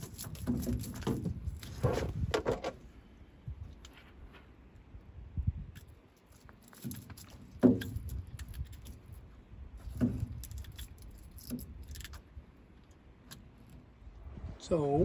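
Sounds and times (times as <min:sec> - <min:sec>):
light clicking and rattling: 0:00.0 - 0:01.7, 0:05.8 - 0:14.0.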